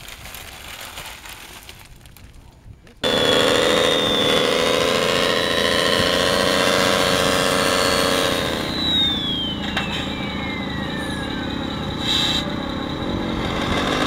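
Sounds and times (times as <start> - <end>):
model truck motor droning and whining: 3.0 - 14.0.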